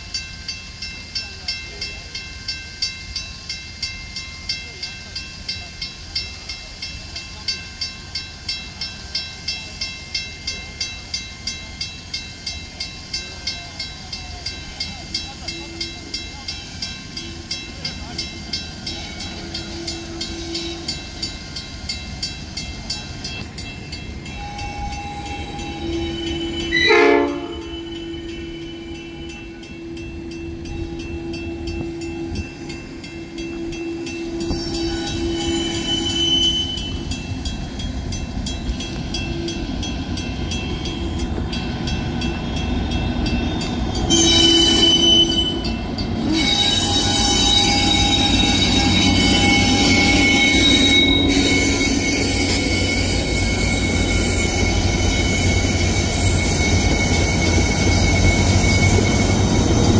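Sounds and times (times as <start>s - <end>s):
locomotive rumble: 3.0s - 59.9s
locomotive horn: 24.3s - 32.4s, 33.2s - 37.0s, 44.1s - 54.6s.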